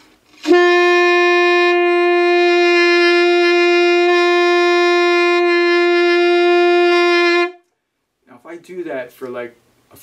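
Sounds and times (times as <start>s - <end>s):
alto saxophone long note: 0.4s - 7.6s.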